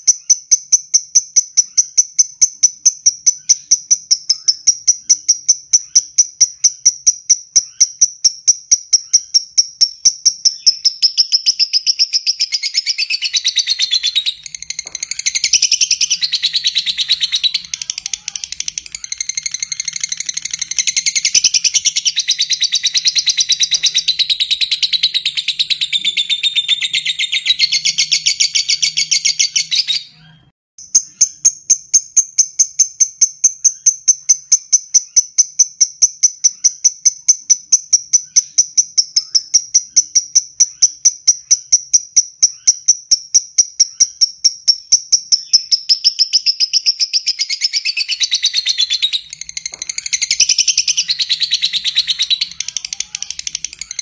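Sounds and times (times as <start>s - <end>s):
lovebird chattering trill: 0.0s - 30.2s, 30.8s - 54.0s
high-pitched ticking: 13.3s - 25.8s, 48.1s - 54.0s.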